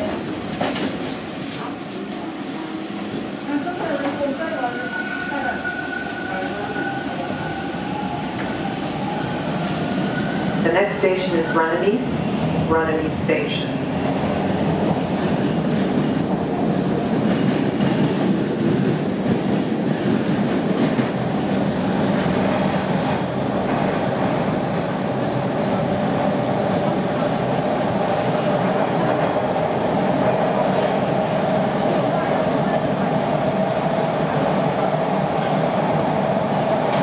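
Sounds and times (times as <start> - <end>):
train wheels rumbling on rail: 0.0 - 37.0
train whine: 0.0 - 37.0.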